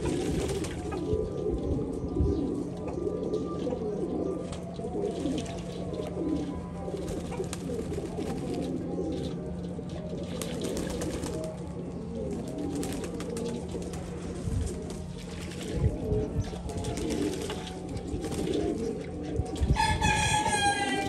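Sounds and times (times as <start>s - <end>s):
pigeons cooing: 0.0s - 21.0s.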